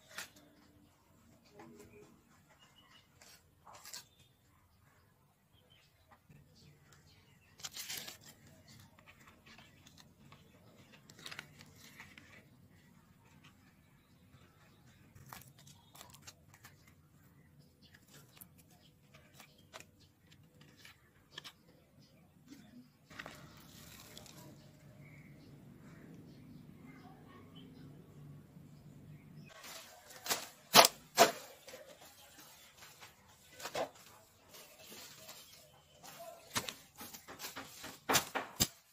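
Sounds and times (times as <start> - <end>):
weeds being plucked: 7.5 - 12.8, 23.1 - 25.3, 29.5 - 38.9
sharp cracks of stems: 29.6 - 31.8, 36.0 - 38.9.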